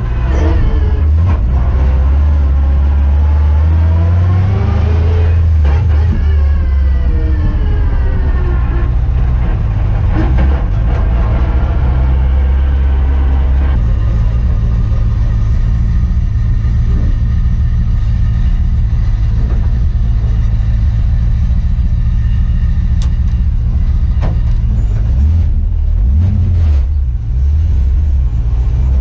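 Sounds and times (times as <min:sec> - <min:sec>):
car engine deep rumble: 0:00.0 - 0:29.0.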